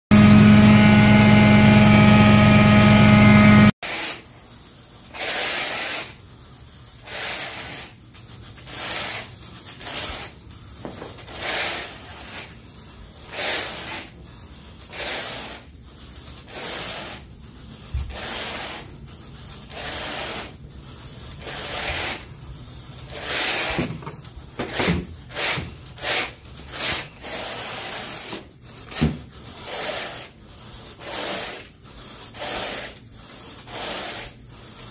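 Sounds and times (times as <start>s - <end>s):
loud steady hum: 0.1s - 3.7s
rake swishing through carpet: 4.9s - 34.9s.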